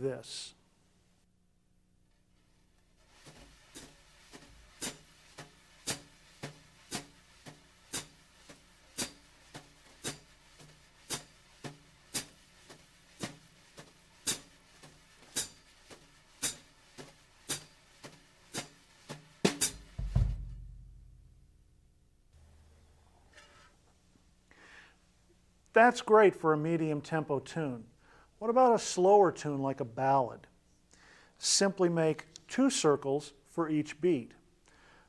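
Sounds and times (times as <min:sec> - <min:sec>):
wire brushes swishing on snare: 0:02.4 - 0:20.0
loud snare hit: 0:05.8 - 0:07.2, 0:09.0 - 0:09.3, 0:14.2 - 0:14.5, 0:16.4 - 0:16.7, 0:17.5 - 0:17.7, 0:18.5 - 0:20.8.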